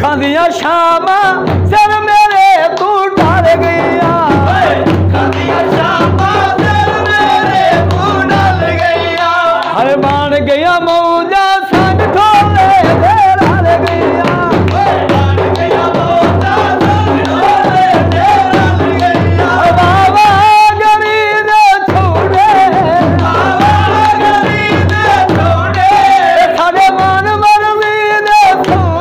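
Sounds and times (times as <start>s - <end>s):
man singing folk melody: 0.0s - 29.0s
barrel drum beating: 1.4s - 2.3s, 3.1s - 10.8s, 11.7s - 21.0s, 21.9s - 29.0s
hand claps: 1.8s - 11.0s, 11.8s - 21.2s, 21.9s - 29.0s.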